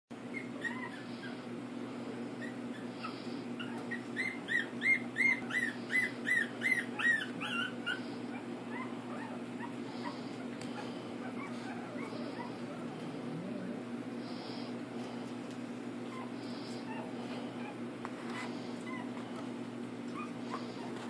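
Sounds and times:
puppies whimpering: 0.2s - 1.6s, 2.4s - 15.2s, 16.0s - 21.0s
steady low hum: 0.2s - 21.0s.

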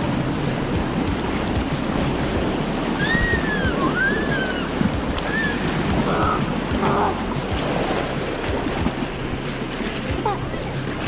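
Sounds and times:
river rapids rushing: 0.0s - 11.0s
faint high whistle-like glides: 2.9s - 7.5s.

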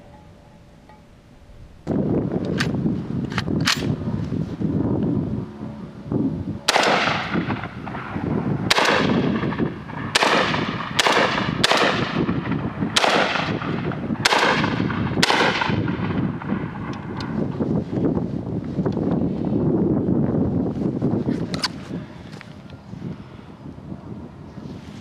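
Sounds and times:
shotgun blasts with echo: 6.7s - 16.9s.

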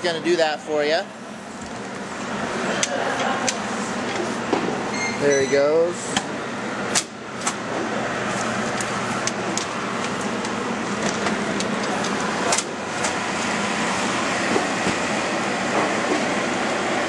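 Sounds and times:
blower rushing: 5.9s - 17.0s.

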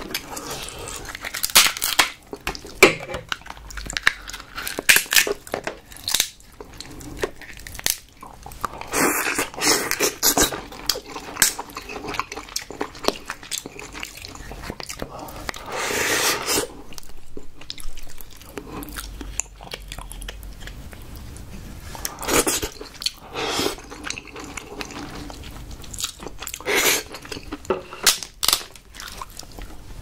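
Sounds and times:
chewing crab meat: 0.0s - 15.7s, 16.7s - 29.9s
crab shell cracking: 1.0s - 8.2s.

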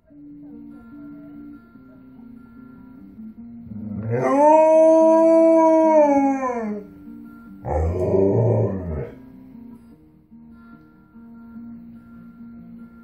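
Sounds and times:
dog howling: 3.8s - 6.9s, 7.6s - 9.2s.

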